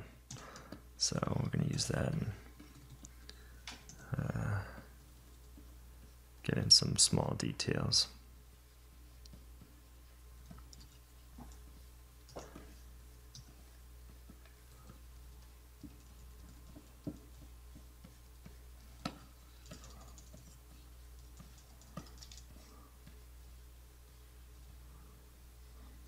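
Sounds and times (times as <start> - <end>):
low electrical hum: 0.0 - 26.0
pen tapping: 14.3 - 20.4
computer keys clicking: 19.0 - 20.6, 21.2 - 22.5.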